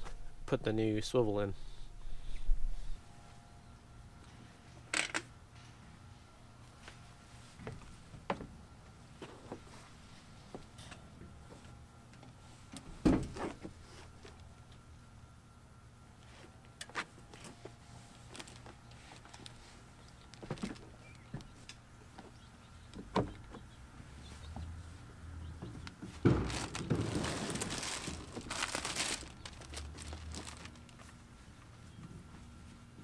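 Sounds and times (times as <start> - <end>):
rustling and scraping: 26.0 - 32.8.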